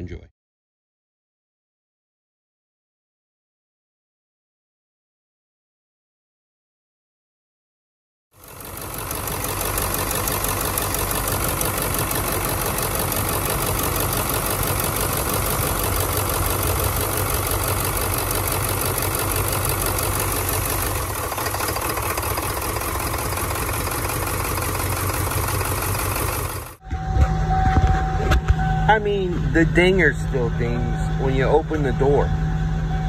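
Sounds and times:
diesel engine idling clatter: 8.4s - 26.8s.

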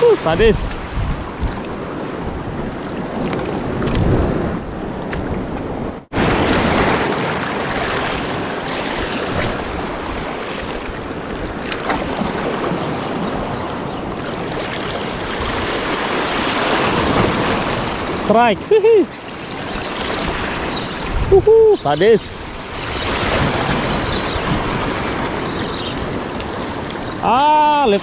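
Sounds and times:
wind buffeting microphone: 0.0s - 18.8s, 19.4s - 27.2s
surf washing over rocks: 6.1s - 28.0s.

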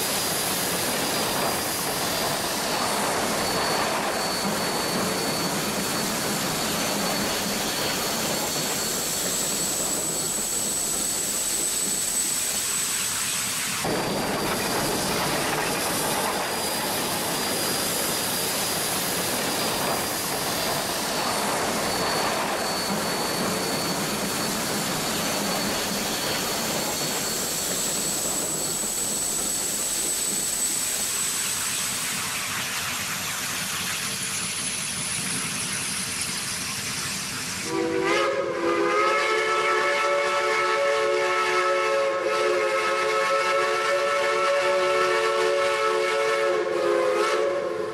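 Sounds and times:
steady hissing: 0.0s - 37.6s
steam locomotive whistle: 37.6s - 47.9s.

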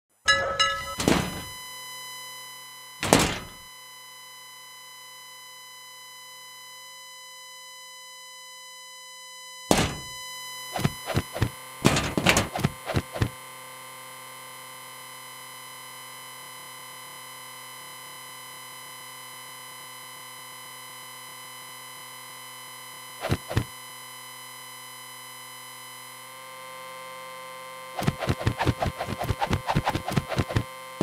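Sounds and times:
steady synthetic tone: 0.3s - 1.6s
loud electronic thuds: 0.4s - 1.6s, 3.0s - 3.6s, 9.7s - 10.2s, 10.8s - 13.3s.

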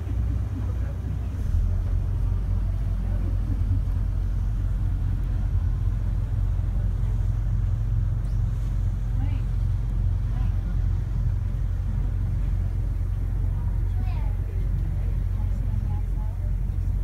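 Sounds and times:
ferry engines rumbling: 0.0s - 17.0s.

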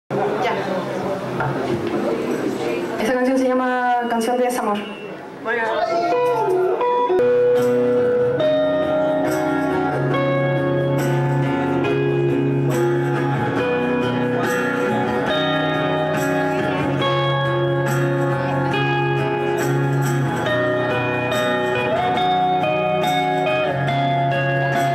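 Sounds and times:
electric guitar held notes: 4.9s - 24.9s
steady low bass line: 7.8s - 24.9s.

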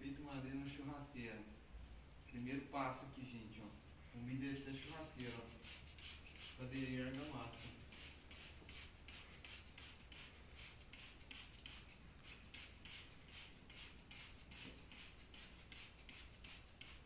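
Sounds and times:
spray bottle squirting: 4.6s - 17.0s.

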